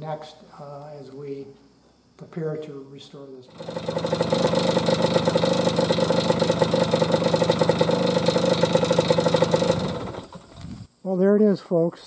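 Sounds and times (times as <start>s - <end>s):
two-stroke motorcycle engine running: 3.5s - 10.8s.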